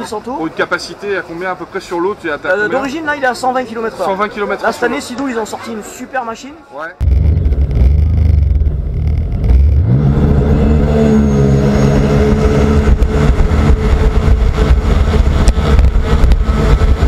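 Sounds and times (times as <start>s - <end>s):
rumble of wind and water: 7.0s - 17.0s
jet ski engine at full throttle: 7.1s - 17.0s.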